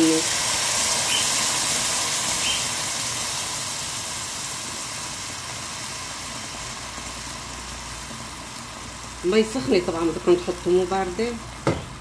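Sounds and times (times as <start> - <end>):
hot water pouring into a pot: 0.0 - 12.0.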